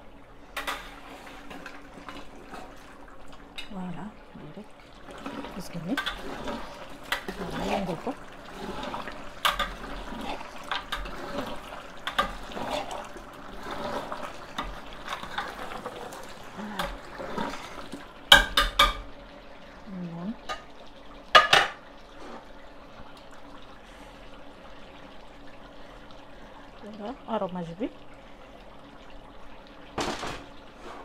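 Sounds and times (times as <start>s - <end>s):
oil and juices bubbling: 0.0s - 31.0s.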